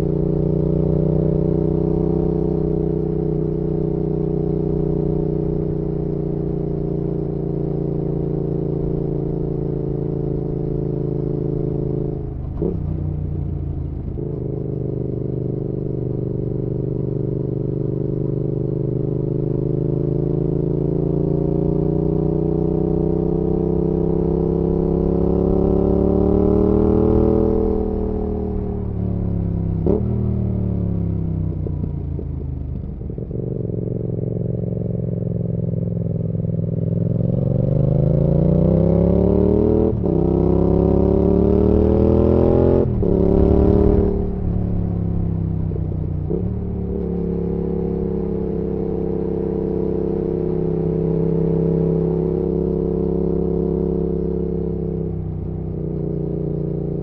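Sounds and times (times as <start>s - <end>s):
motorcycle engine revving: 19.8s - 57.0s.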